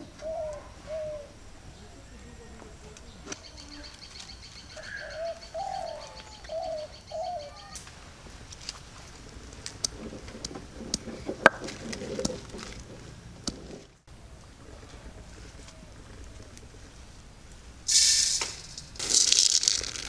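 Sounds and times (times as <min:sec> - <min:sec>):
dove cooing: 0:00.0 - 0:02.5, 0:03.1 - 0:07.8, 0:14.1 - 0:17.1
sharp clicks and knocks: 0:09.6 - 0:13.9.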